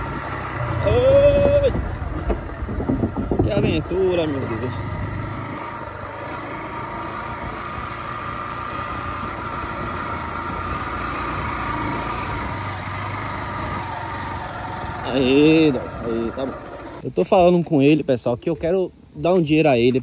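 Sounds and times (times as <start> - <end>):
vehicle engine running: 0.0 - 17.4.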